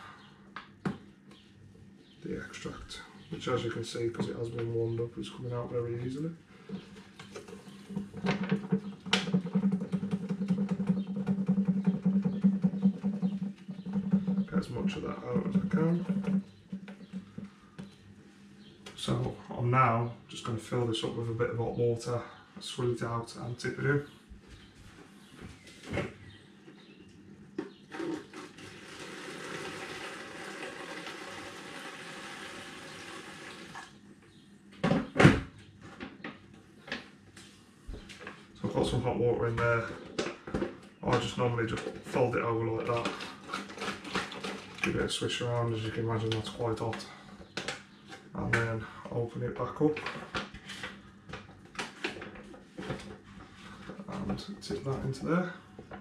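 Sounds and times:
hot water poured from a kettle: 28.0s - 33.9s.

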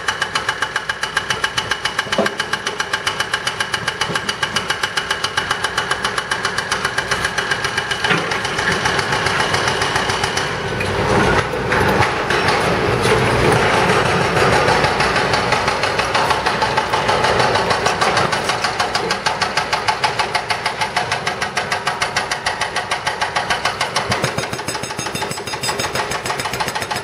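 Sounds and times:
hydraulic breaker hammering concrete: 0.0s - 27.0s
rough machine noise: 6.9s - 20.2s.

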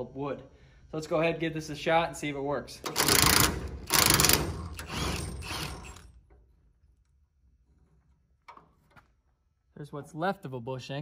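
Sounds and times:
cordless power tool bursts: 2.9s - 6.1s.

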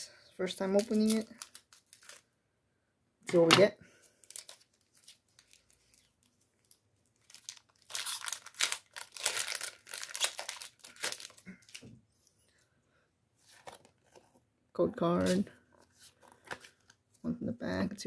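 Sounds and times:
foil wrapper tearing and crinkling: 0.8s - 2.2s, 4.2s - 11.8s.

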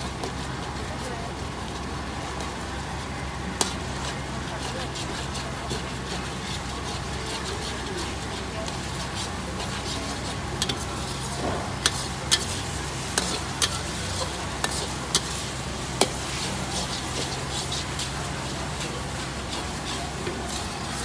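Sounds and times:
food sizzling: 0.0s - 21.0s
metal spatula clanking in a wok: 10.6s - 15.4s.

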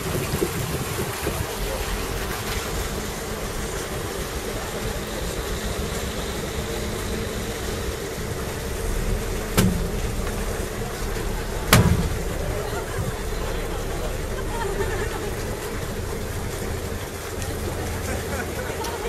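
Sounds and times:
ship engine idling: 0.0s - 19.0s
sharp knocks: 9.1s - 12.5s.

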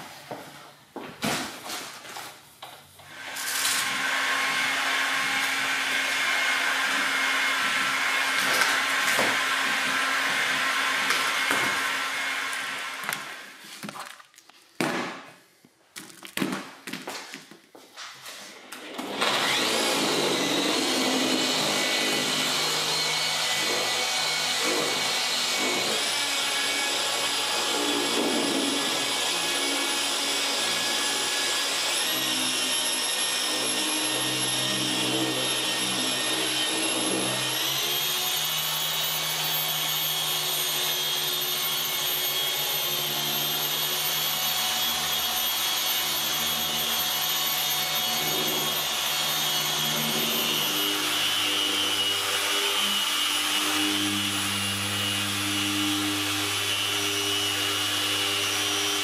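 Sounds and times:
polisher motor whine: 18.8s - 59.0s.

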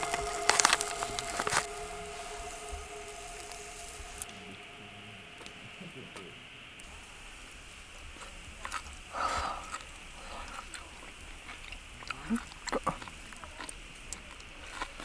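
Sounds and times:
person chewing: 9.5s - 15.0s.

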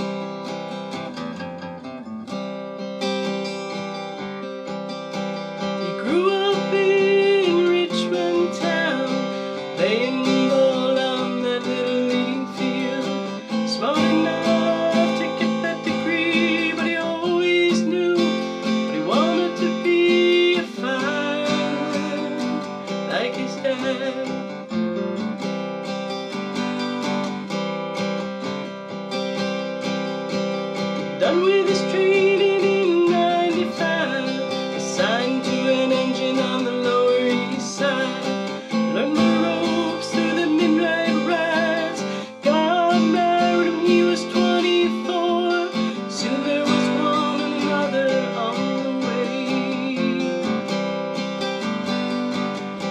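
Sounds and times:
acoustic guitar strumming: 0.0s - 52.9s
person singing long notes: 5.9s - 24.3s, 31.2s - 50.4s.

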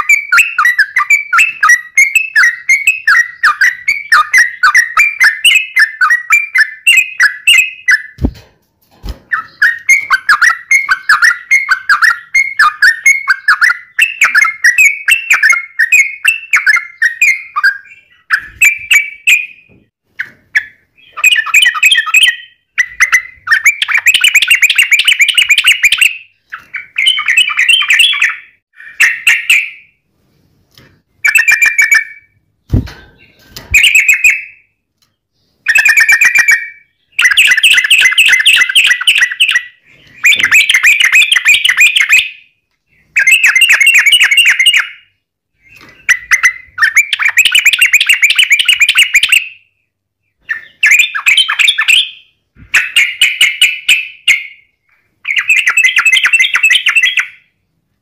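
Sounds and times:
bird singing chattering trills: 0.0s - 8.3s, 9.3s - 19.7s, 20.6s - 29.8s, 35.4s - 49.7s.

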